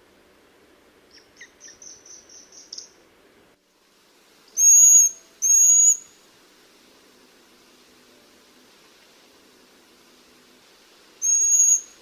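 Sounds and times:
owl piercing high whistles: 1.1 - 3.0, 4.6 - 6.1, 11.2 - 12.0
owl calling high notes: 11.2 - 12.0.

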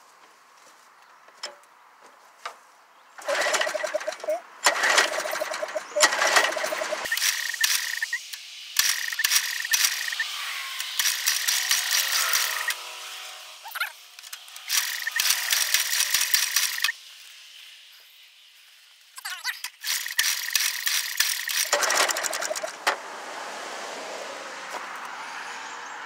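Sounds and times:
engine cranking clicking and rattling: 3.2 - 12.8, 14.2 - 16.9, 19.6 - 23.0.

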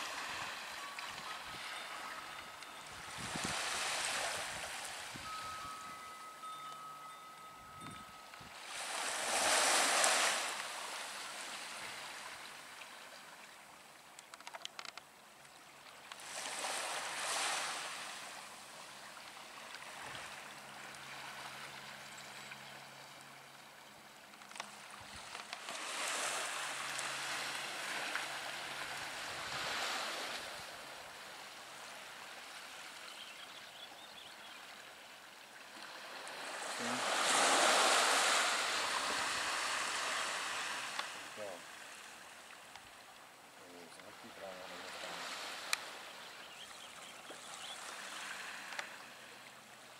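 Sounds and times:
small waves washing on shore: 0.0 - 33.4, 34.5 - 49.9.

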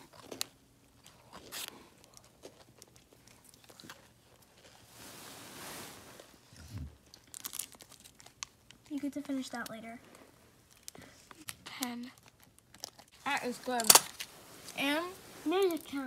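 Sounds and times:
chewing and crunching cookie: 0.0 - 5.0, 6.5 - 13.2
soft hiss: 4.8 - 7.6.

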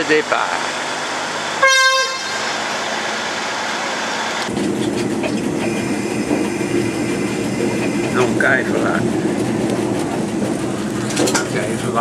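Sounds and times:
train rumbling: 0.0 - 12.0
train horn toot: 1.6 - 2.6, 5.6 - 7.9.

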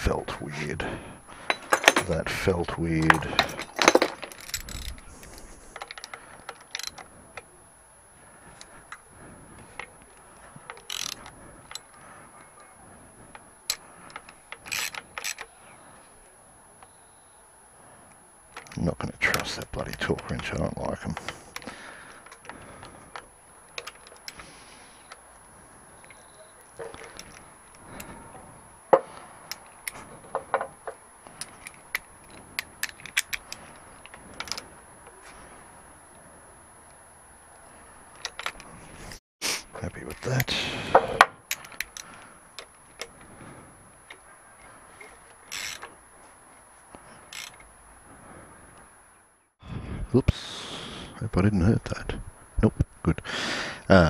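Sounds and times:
metal hand tools clinking: 1.4 - 7.0
socket ratchet ratcheting: 3.0 - 7.1, 10.6 - 11.9, 13.7 - 15.5, 45.0 - 46.0, 47.3 - 47.7.

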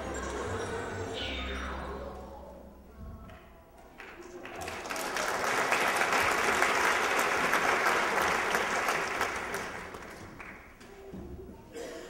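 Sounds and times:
audience applauding: 4.0 - 10.7.

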